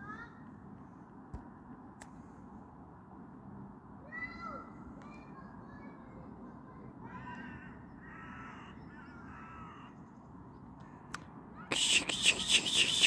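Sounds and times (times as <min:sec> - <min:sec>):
animal calling: 0:11.7 - 0:13.0.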